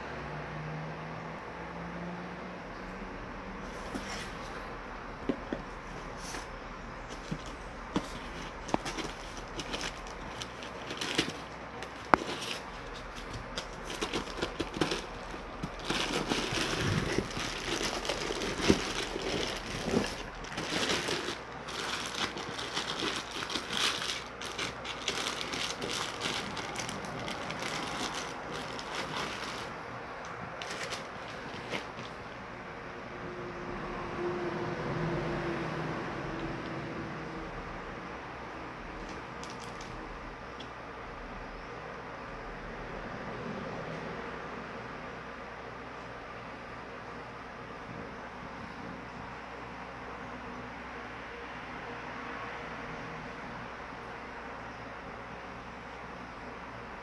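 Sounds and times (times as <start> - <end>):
cardboard box handling: 3.7 - 4.6, 5.2 - 29.8, 30.6 - 32.2
plastic bag crinkling: 6.1 - 29.8, 30.6 - 32.2, 39.1 - 40.0.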